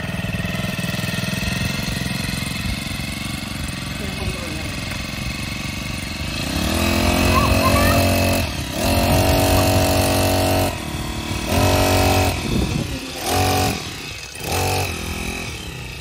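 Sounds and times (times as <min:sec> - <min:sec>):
brush cutter engine revving: 0:00.0 - 0:16.0.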